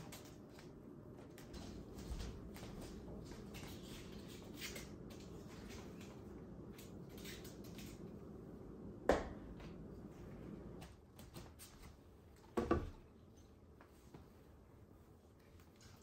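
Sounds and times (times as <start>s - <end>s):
faint room hum: 0.0s - 16.0s.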